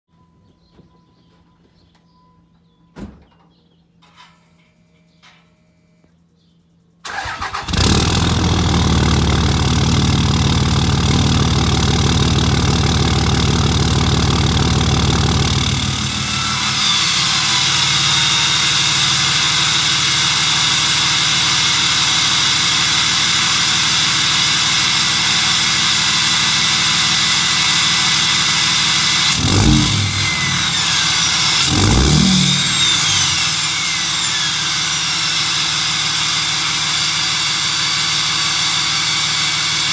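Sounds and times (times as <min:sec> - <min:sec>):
diesel engine cranking: 0:07.0 - 0:39.9
diesel engine idling with deep rumble: 0:07.7 - 0:34.6.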